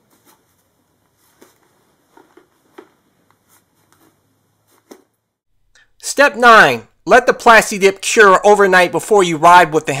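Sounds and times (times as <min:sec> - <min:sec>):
towel scuffing on plastic: 0:00.0 - 0:05.2.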